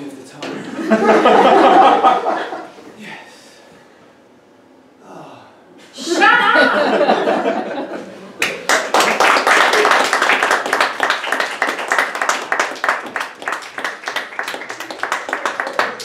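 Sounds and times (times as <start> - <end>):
audience clapping: 8.4 - 16.0.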